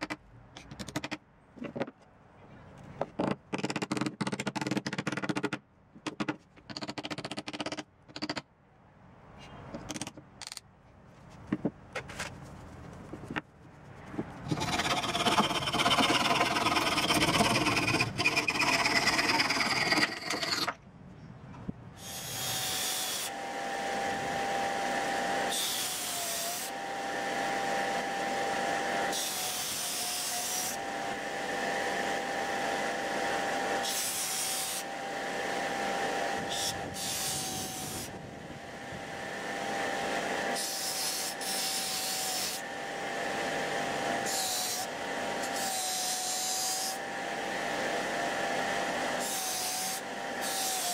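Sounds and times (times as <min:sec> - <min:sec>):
loud rough rasping: 0:14.4 - 0:20.8.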